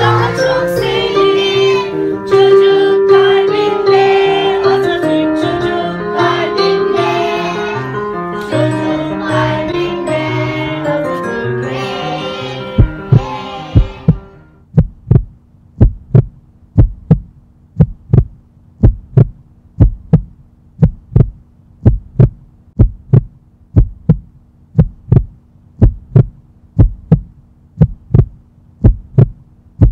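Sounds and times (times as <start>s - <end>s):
low steady hum: 0.0s - 29.9s
heartbeat thumps: 12.8s - 29.9s.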